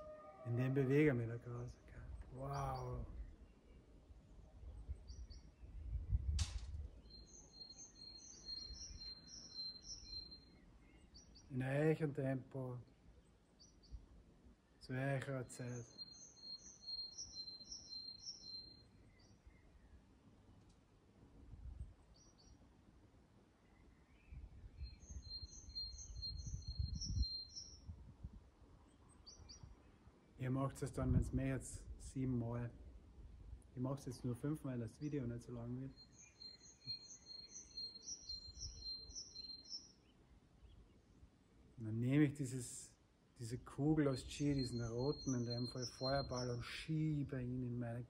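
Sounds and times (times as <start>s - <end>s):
bird chirps: 0.0s - 11.7s, 15.2s - 20.0s, 23.6s - 28.0s, 28.8s - 30.0s, 33.9s - 41.2s, 43.8s - 48.0s
songbird singing: 0.0s - 48.0s
sharp click: 6.4s - 6.8s
bird whistling and chirping: 7.0s - 10.5s, 24.8s - 27.8s, 35.9s - 39.9s, 44.4s - 46.5s.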